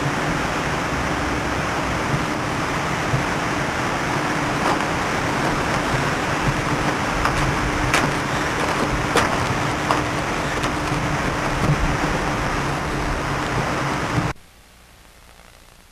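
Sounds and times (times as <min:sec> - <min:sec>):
faint hiss: 0:00.0 - 0:15.9
faint steady hum: 0:00.0 - 0:15.9
storm wind rushing: 0:02.0 - 0:14.3.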